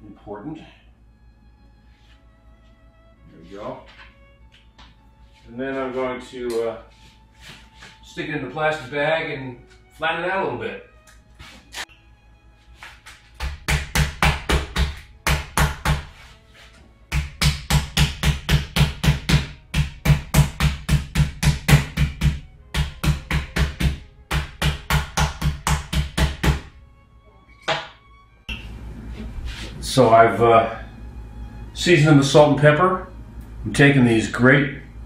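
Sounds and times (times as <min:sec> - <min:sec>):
meat pounder thudding: 0:13.4 - 0:16.2, 0:17.1 - 0:26.7.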